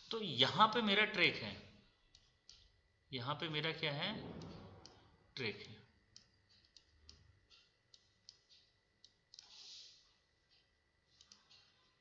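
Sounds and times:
computer mouse clicks: 4.3 - 5.0, 5.6 - 10.0, 10.6 - 11.8.

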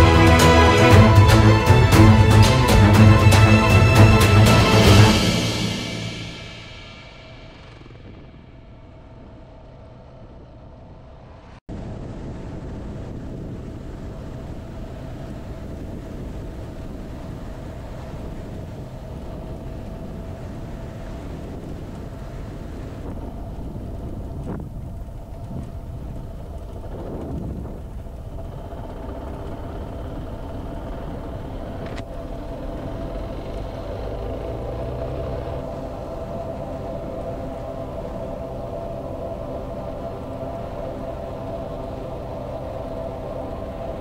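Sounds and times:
wind noise on microphone: 0.0 - 44.0
motorcycle engine running: 14.0 - 44.0.

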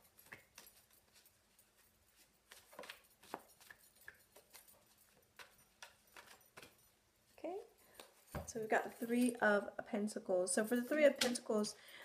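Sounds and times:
cards being handled: 2.1 - 6.8.

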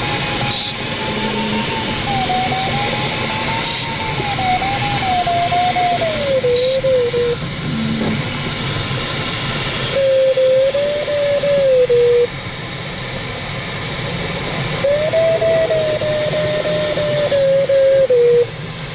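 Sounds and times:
variometer wavering tone: 0.0 - 8.2, 9.9 - 12.3, 14.8 - 18.5
air rushing hiss: 2.9 - 18.9.

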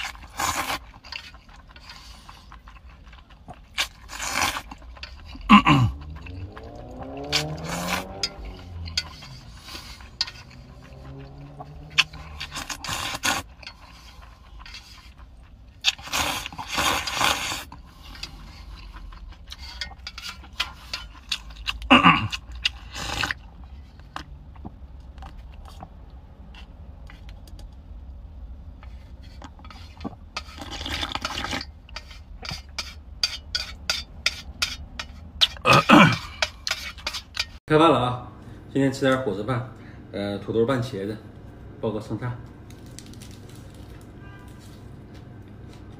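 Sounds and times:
slurping noodles and soup: 0.0 - 27.3, 28.8 - 37.6.

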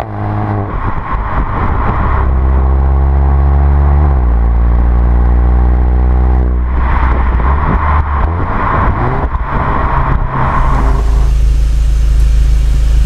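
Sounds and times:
car exhaust drone and rush: 0.0 - 13.0
exhaust cracks: 0.0 - 13.0
car idling: 6.6 - 13.0.

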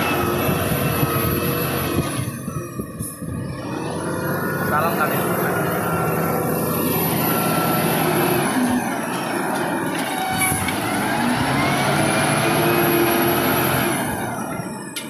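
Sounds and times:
hydraulic whine rising: 0.0 - 15.0
wheel loader diesel engine: 0.0 - 15.0.

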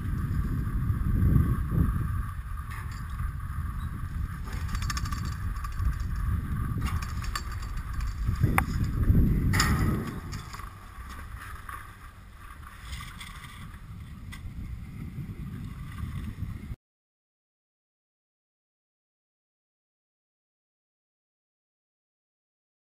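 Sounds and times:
wind on microphone: 0.0 - 11.6, 12.4 - 16.8
skis sliding on snow: 9.9 - 16.4.

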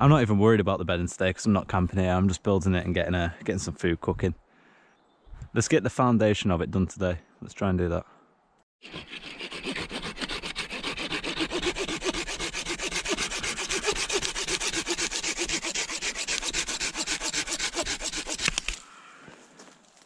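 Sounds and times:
hand saw cutting tree limb: 8.8 - 18.9.

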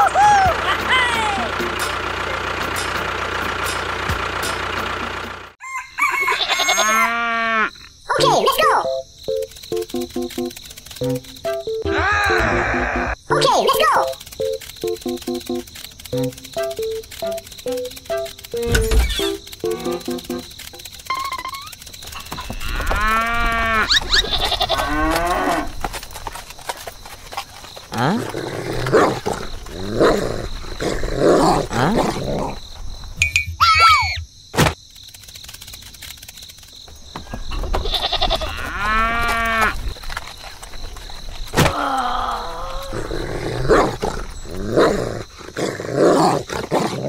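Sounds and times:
drawn-out animal calls: 0.0 - 30.8, 35.4 - 45.4
rooster crowing: 5.6 - 7.5
faint regular ticks: 8.2 - 11.8, 13.7 - 29.9, 34.8 - 37.1.

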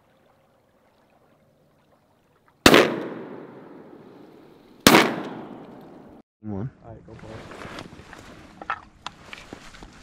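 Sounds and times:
shotgun shot: 2.6 - 6.2.

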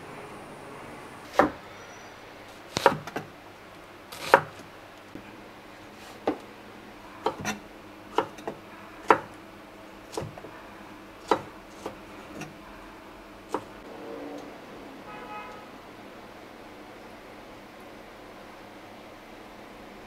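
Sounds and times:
knife tapping on cutting board: 8.2 - 9.3.

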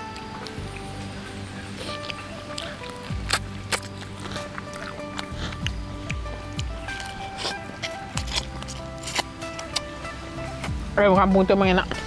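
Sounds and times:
mouth clicks of chewing: 0.0 - 1.0, 1.7 - 10.1
background music with held tones: 0.0 - 12.0.

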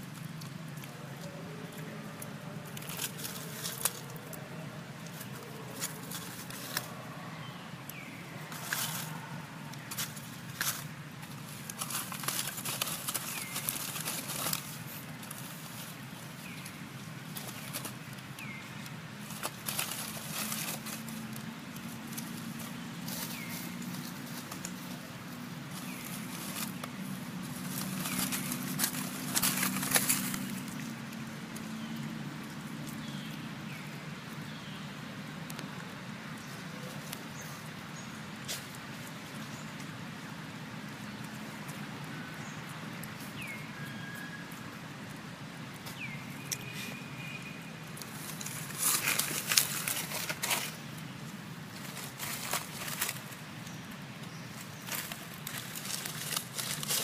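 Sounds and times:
dry leaves crackling: 0.0 - 57.0.

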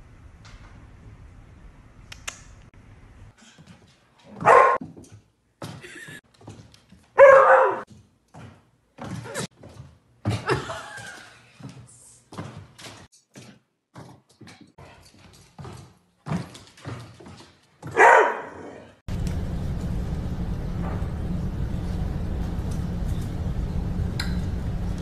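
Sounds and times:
dog barking: 4.3 - 4.8, 7.2 - 7.9, 17.9 - 18.9.

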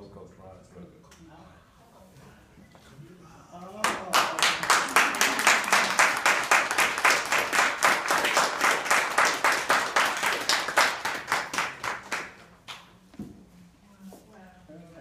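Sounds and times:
audience applauding: 3.8 - 12.4.

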